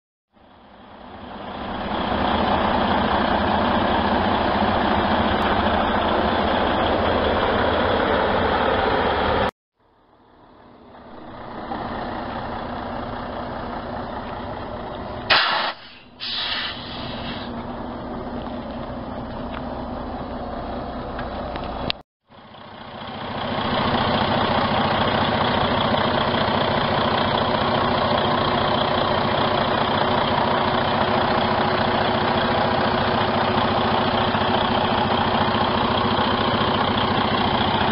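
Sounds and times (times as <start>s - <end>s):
diesel truck engine idling: 0.3s - 37.9s
short hisses: 15.3s - 17.6s.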